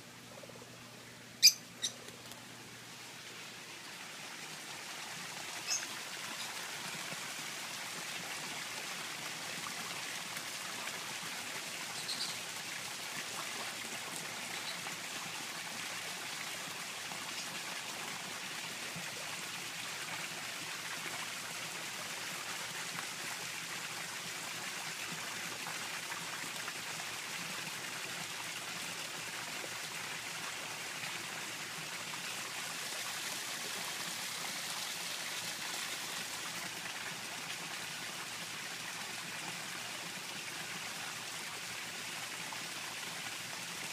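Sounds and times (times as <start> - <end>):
high chirps: 1.4 - 2.0
water trickling from small waterfall: 1.4 - 43.9.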